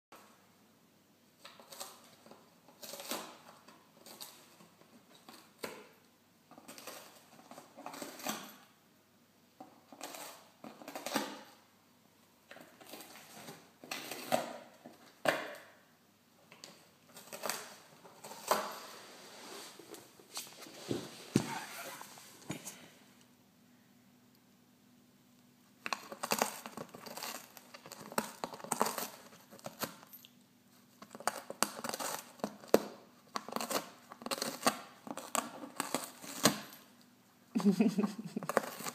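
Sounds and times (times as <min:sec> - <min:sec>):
cat chewing cardboard: 0:25.8 - 0:29.9, 0:31.0 - 0:36.6, 0:37.7 - 0:38.9.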